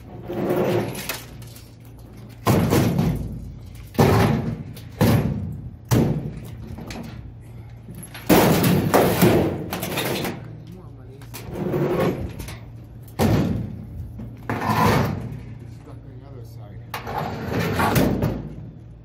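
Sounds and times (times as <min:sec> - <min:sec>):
sheet metal cabinet banging: 0:02.4 - 0:06.4, 0:08.3 - 0:10.4, 0:13.2 - 0:13.9.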